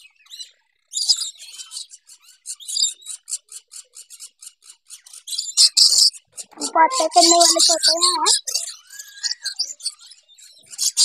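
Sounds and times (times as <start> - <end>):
lorikeets chattering: 5.8 - 8.8.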